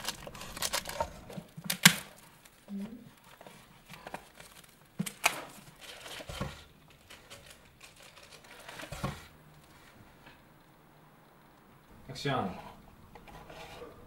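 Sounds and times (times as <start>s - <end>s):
plastic packaging crinkling and tearing: 0.0s - 9.8s.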